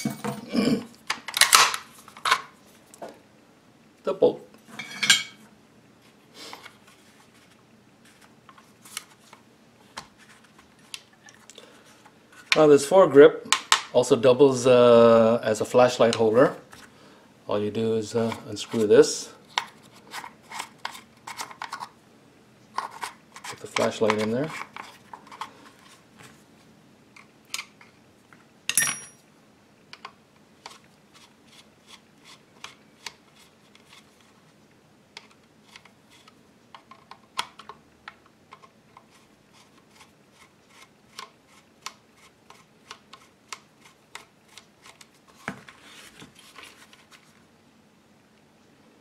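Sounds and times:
scraping rustle of handling: 6.0 - 12.9, 18.1 - 21.9, 39.0 - 47.5
ringing metal clink: 28.7 - 29.2.

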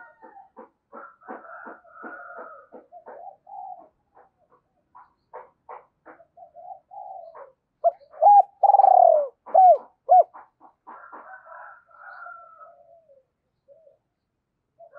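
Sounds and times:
dove cooing: 2.3 - 4.3, 6.4 - 10.5, 12.6 - 14.0.

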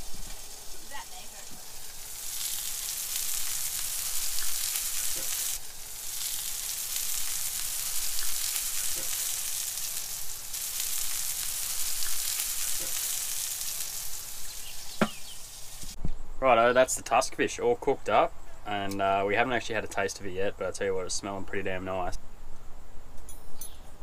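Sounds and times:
fish sizzling in oil: 0.0 - 16.0.

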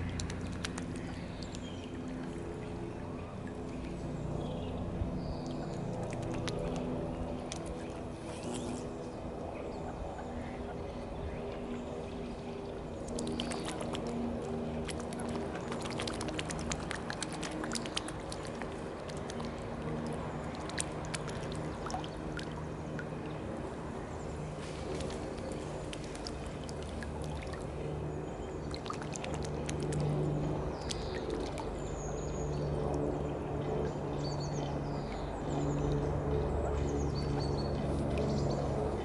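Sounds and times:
swan dabbling in water: 0.0 - 4.2, 5.2 - 8.7, 12.4 - 32.0
small birds chirping: 0.0 - 8.9, 24.0 - 39.0
helicopter drone overhead: 0.0 - 39.0.

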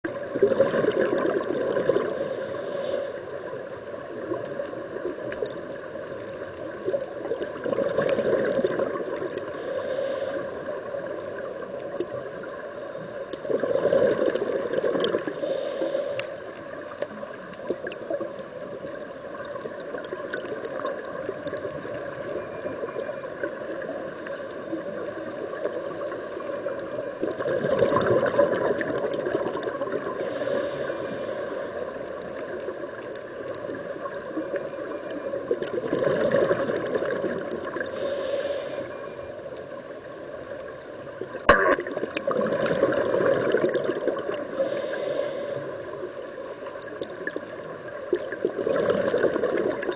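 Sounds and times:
exhaled bubbles gurgling: 0.1 - 2.5, 3.3 - 9.8, 10.5 - 15.7, 16.5 - 31.2, 31.8 - 39.2, 41.1 - 49.9
steady watery hiss: 1.2 - 7.7, 9.1 - 27.4, 29.6 - 35.3, 37.6 - 41.2, 44.2 - 47.0
hissing regulator inhalations: 2.1 - 3.4, 9.5 - 10.8, 15.3 - 16.5, 30.2 - 31.9, 37.8 - 39.1, 44.5 - 46.0.

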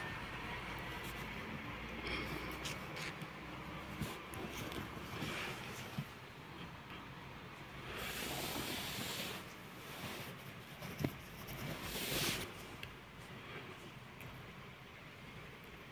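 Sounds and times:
duvet fabric rustling: 3.7 - 6.3, 7.8 - 13.3.

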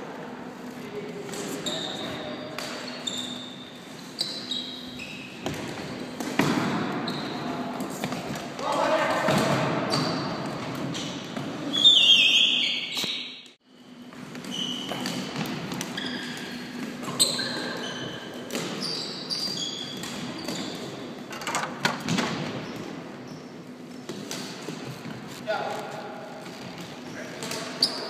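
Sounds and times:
sneakers squealing on floor: 1.3 - 8.3, 9.2 - 21.2, 22.3 - 23.8, 26.6 - 28.0.

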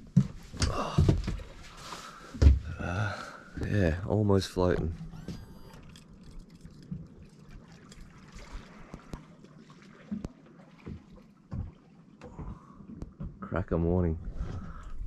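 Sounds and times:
waves lapping against hull: 0.0 - 15.0
soft low water slaps: 6.5 - 13.4.

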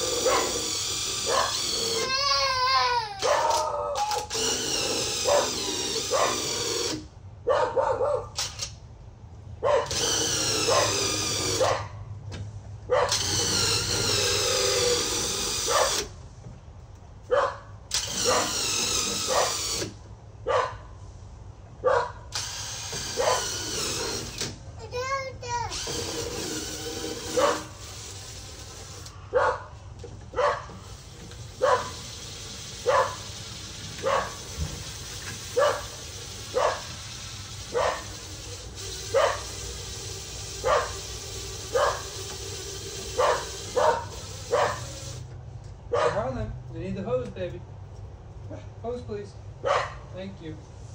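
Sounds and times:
power tool motor running: 0.0 - 7.1, 9.8 - 11.8, 13.1 - 16.2, 17.9 - 20.0, 22.3 - 24.6, 25.7 - 29.1, 30.7 - 45.3
dog barking: 0.2 - 0.6, 1.3 - 1.6, 3.2 - 4.0, 5.2 - 6.4, 7.4 - 8.3, 9.6 - 9.9, 10.7 - 11.0, 11.6 - 12.0, 12.9 - 13.2, 15.7 - 16.0, 17.3 - 18.5, 19.3 - 19.6, 20.4 - 20.9, 21.8 - 22.2, 23.2 - 23.4, 27.4 - 27.7, 29.3 - 29.7, 30.4 - 30.7, 31.6 - 32.0, 32.8 - 33.2, 34.0 - 34.4, 35.6 - 35.9, 36.5 - 36.9, 37.7 - 38.1, 39.1 - 39.5, 40.6 - 41.0, 41.7 - 42.1, 43.2 - 44.8, 45.9 - 46.3, 49.6 - 50.0.

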